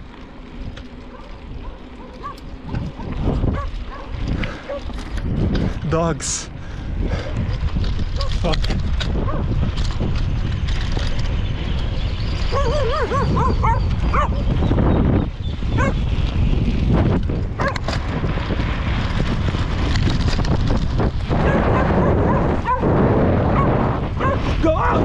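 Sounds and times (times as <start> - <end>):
dogs barking and yelping: 1.0 - 5.0, 12.4 - 14.6, 15.7 - 16.1, 17.6 - 17.8, 21.4 - 25.0.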